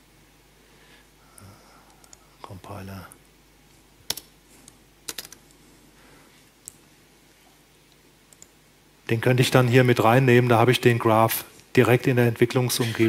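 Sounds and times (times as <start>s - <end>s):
laptop keystrokes: 5.1s - 5.5s.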